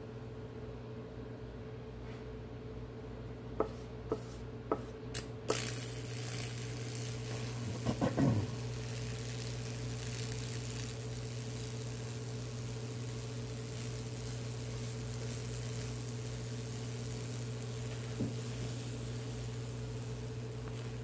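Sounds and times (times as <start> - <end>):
electrical hum: 0.0 - 21.0
electric arc sizzling hiss: 5.1 - 21.0.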